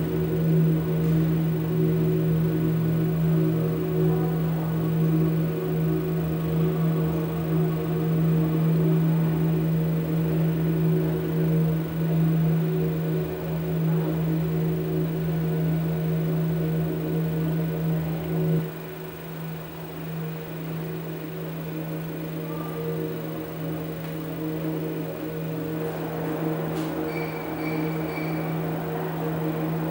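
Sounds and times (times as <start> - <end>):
low electronic hum: 0.0 - 29.9
held higher electronic tones: 24.7 - 29.9.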